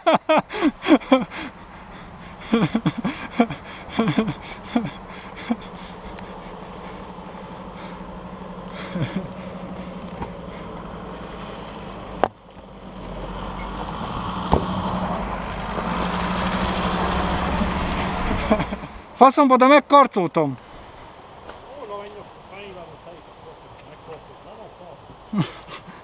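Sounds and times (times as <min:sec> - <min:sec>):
low engine hum: 0:00.0 - 0:19.2
van driving on gravel: 0:00.2 - 0:19.3.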